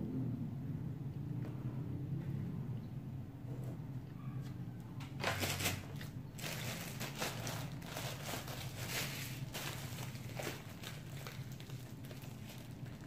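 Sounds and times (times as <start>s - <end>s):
plastic bag crinkling: 5.2s - 13.0s.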